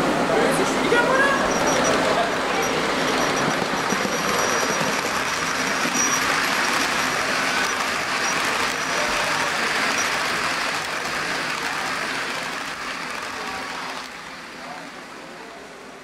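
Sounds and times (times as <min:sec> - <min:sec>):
model train wheels rumbling on rails: 0:00.0 - 0:16.0.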